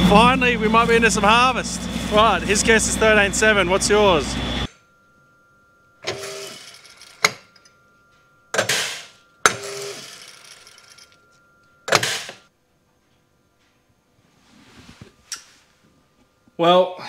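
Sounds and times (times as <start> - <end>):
grain analyser whirring and clicking: 0.0 - 4.7, 6.0 - 7.6, 8.5 - 11.2.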